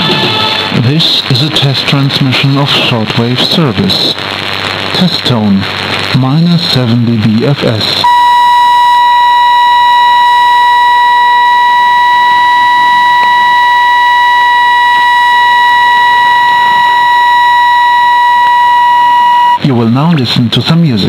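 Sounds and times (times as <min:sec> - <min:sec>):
faint radio hiss: 0:00.6 - 0:21.0
steady test tone: 0:08.0 - 0:19.8.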